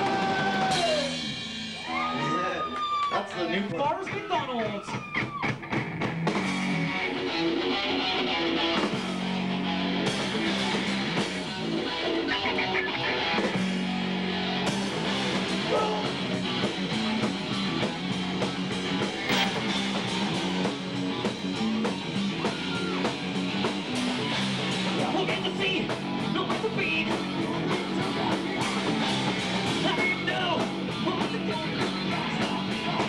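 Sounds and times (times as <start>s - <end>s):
drum and cymbal hits: 0.0s - 2.0s, 14.7s - 32.6s
rock band playing: 0.0s - 33.0s.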